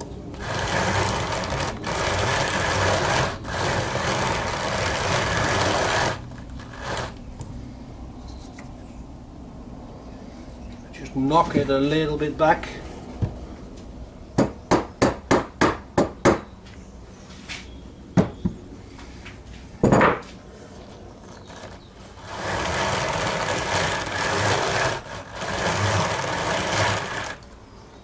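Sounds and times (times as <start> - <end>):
rough scratchy noise: 0.0 - 7.2, 21.3 - 27.4.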